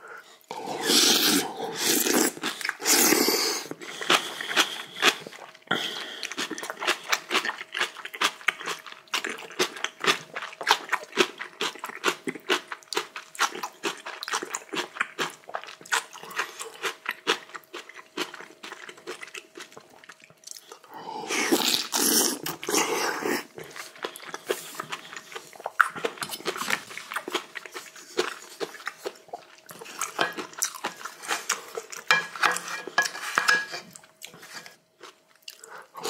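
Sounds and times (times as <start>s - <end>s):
person slurping soup: 0.5s - 6.6s, 21.0s - 25.5s
crunchy chewing: 0.8s - 20.8s, 21.5s - 36.0s.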